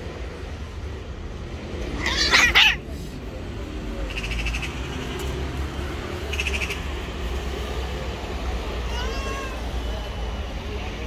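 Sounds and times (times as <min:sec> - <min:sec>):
cat yowling angrily: 0:02.0 - 0:02.9, 0:08.8 - 0:09.7
faint rasping pulsing calls: 0:04.1 - 0:05.2.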